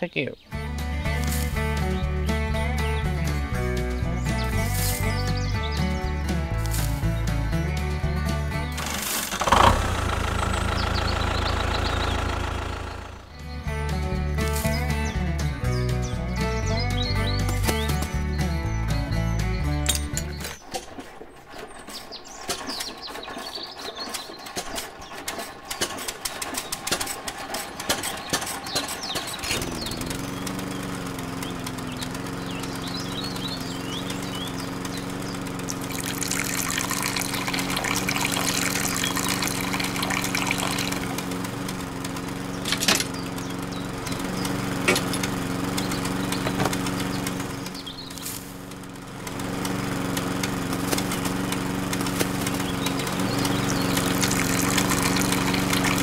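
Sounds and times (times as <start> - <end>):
small electric motor humming: 29.0 - 56.0.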